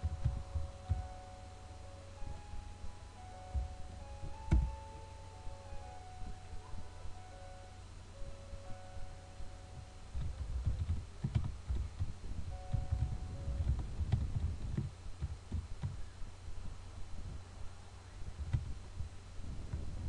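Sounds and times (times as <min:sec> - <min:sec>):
computer keyboard typing: 0:10.1 - 0:16.0.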